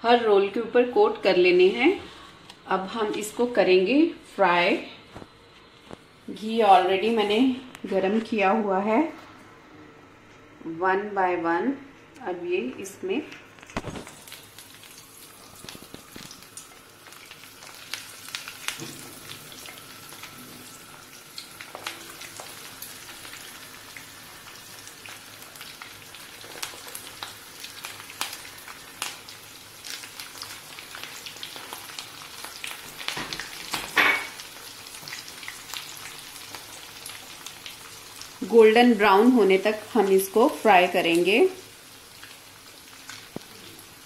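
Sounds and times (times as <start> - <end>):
deep-frying sizzle with pops: 13.3 - 44.0.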